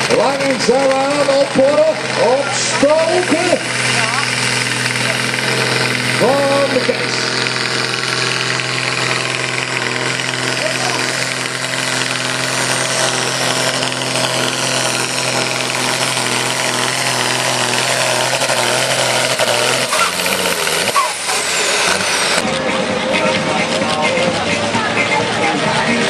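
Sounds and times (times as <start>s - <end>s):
tractor diesel engine running hard: 0.0s - 26.0s.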